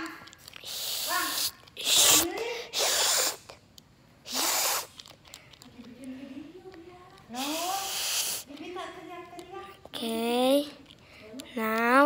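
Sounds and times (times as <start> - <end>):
child making hissing snarls: 0.6 - 3.6, 4.2 - 4.9, 7.3 - 8.5.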